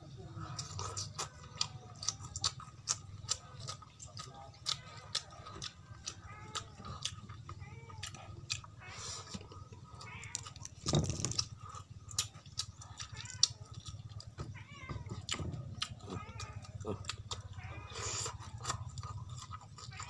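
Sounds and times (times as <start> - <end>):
animal calls: 0.4 - 20.0
eating clicks and crackles: 0.4 - 20.0.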